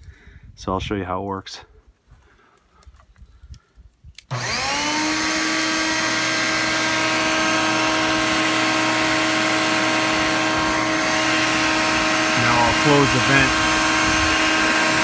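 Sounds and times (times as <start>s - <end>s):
electric pump motor whining: 4.3s - 15.0s.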